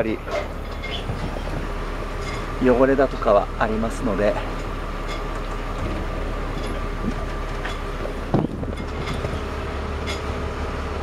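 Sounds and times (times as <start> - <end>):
steady low rumble: 0.0 - 11.0
footsteps on boat deck: 0.2 - 2.6.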